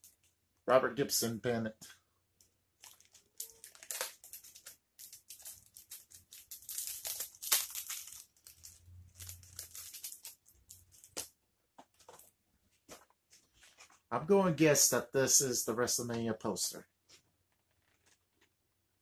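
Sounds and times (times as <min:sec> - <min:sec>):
packaging rustling and crinkling: 0:02.7 - 0:14.1, 0:17.5 - 0:18.6.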